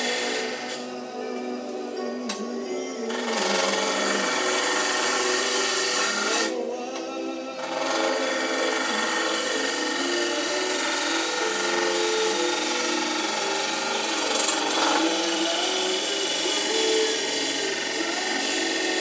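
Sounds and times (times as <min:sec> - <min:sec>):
lathe tool scraping wood: 0:00.0 - 0:19.0.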